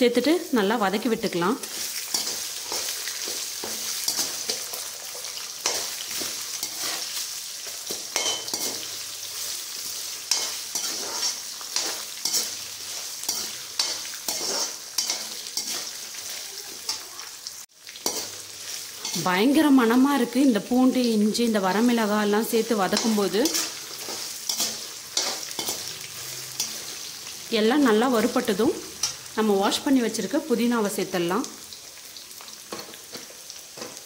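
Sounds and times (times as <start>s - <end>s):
spices sizzling in hot oil: 0.0s - 34.0s
metal spatula scraping pan: 1.6s - 7.2s, 7.8s - 17.0s, 22.9s - 27.3s.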